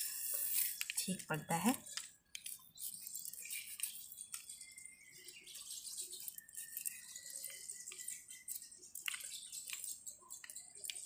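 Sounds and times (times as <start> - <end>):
knife cutting fruit rind: 0.0 - 4.9.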